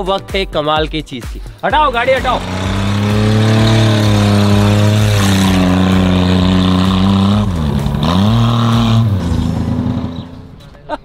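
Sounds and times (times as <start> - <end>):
car engine revving high: 2.0 - 10.6.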